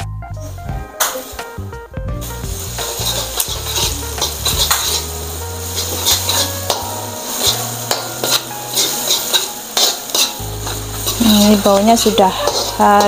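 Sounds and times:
background music with bass: 0.0s - 8.8s, 10.4s - 13.0s
food sizzling in oil: 1.0s - 13.0s
metal spatula scraping wok: 2.6s - 13.0s.

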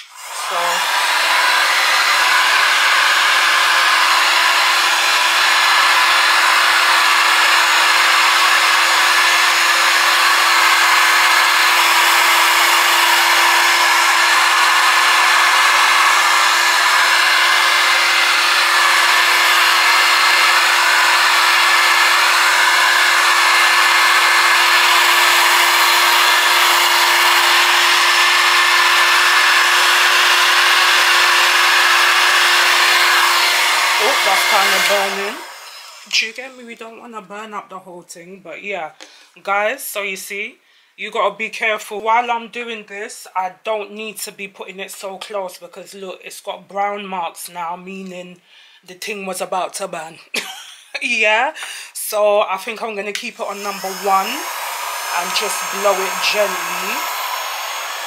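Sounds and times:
heat gun blowing air: 0.0s - 36.7s, 51.6s - 52.0s, 53.1s - 58.0s.

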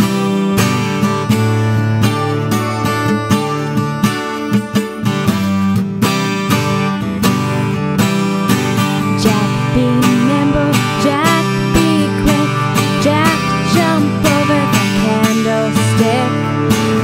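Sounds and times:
acoustic guitar strumming: 0.0s - 17.0s
woman singing: 9.0s - 17.0s.

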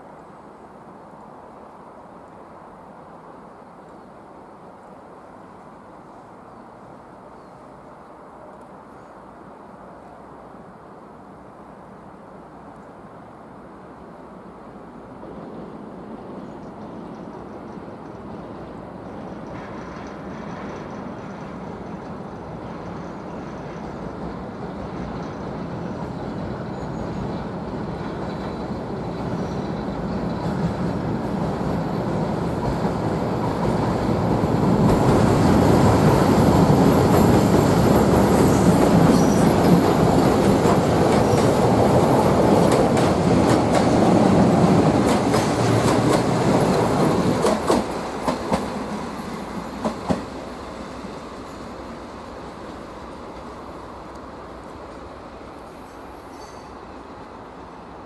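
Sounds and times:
train wheels rumbling on bridge: 15.2s - 58.0s.

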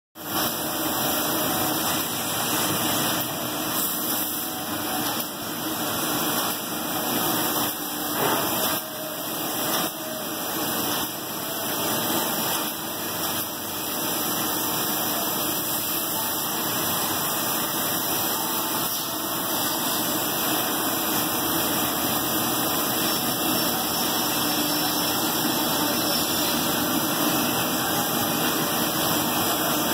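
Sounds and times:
cnc router machining wood: 11.2s - 29.9s.

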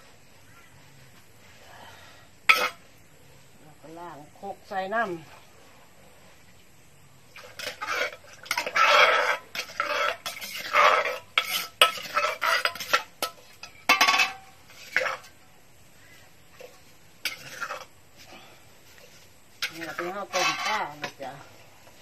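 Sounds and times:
water pouring and splashing: 7.3s - 11.2s
metal ladle clinking against pots: 7.4s - 15.2s.

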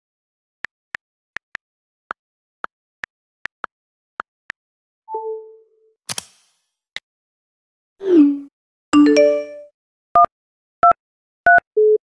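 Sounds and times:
sharp short clicks: 6.1s - 6.6s.

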